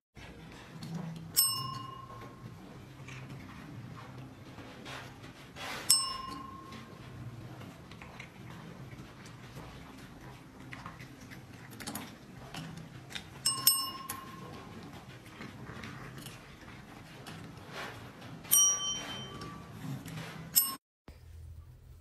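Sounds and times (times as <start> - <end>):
desk call bell dings: 1.4 - 2.4, 5.9 - 6.9, 13.4 - 14.4, 18.5 - 19.6.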